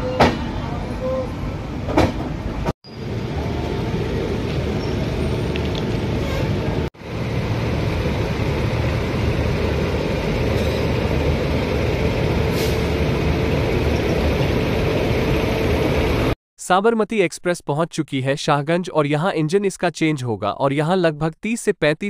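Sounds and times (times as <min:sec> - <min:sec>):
electric locomotive humming: 0:00.0 - 0:16.4.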